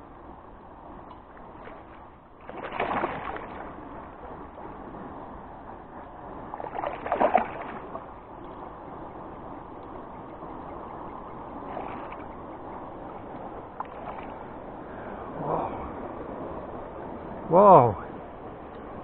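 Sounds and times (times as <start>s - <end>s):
fish splashing at water surface: 2.5s - 3.6s, 6.6s - 7.9s.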